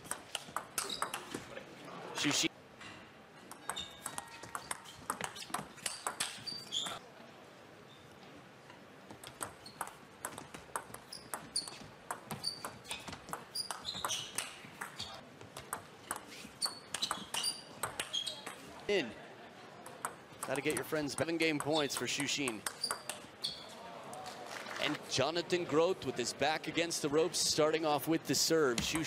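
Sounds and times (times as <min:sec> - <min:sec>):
table tennis ball clicking: 0:00.1 - 0:01.3, 0:03.5 - 0:06.4, 0:15.6 - 0:18.6, 0:19.8 - 0:23.3
short high squeaks: 0:03.7 - 0:07.0, 0:22.7 - 0:23.7.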